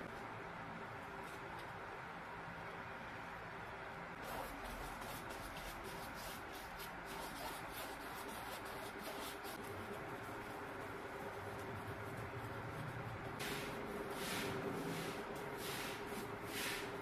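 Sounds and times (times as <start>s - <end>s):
faint steady hum: 0.0s - 17.0s
paintbrush strokes on canvas: 4.2s - 17.0s.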